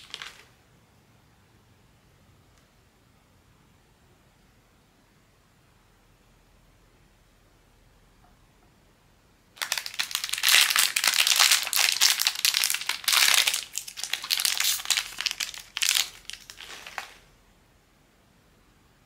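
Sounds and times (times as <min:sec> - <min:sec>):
plastic packaging crinkling: 0:00.0 - 0:00.5, 0:09.6 - 0:17.3.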